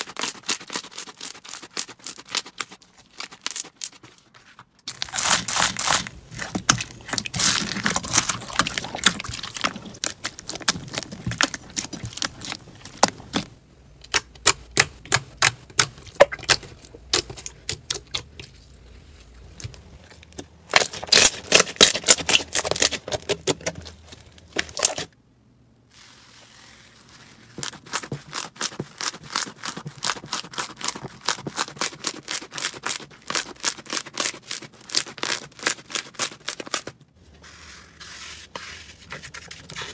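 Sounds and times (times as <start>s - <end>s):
slime crackling and popping: 4.9s - 18.3s.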